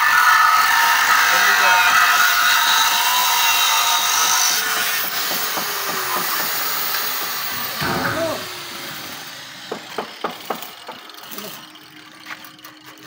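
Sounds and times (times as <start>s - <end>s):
power tool hissing on steel: 0.0s - 13.0s.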